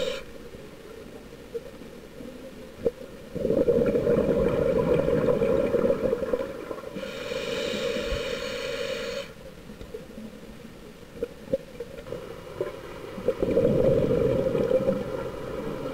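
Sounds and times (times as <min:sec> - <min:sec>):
thin steady whine: 0:00.0 - 0:00.6
underwater bubbles gurgling: 0:00.0 - 0:08.6, 0:09.6 - 0:15.9.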